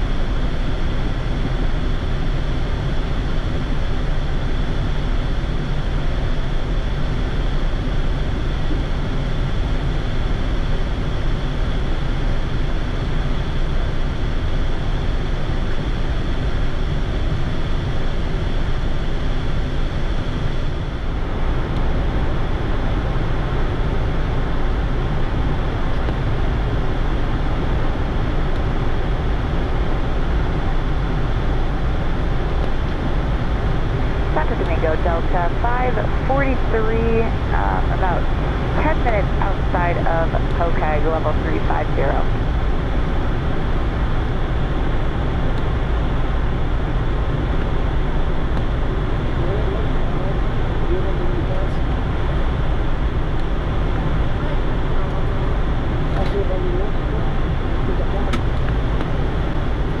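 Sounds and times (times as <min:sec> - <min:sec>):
low rumble: 0:16.8 - 1:00.0.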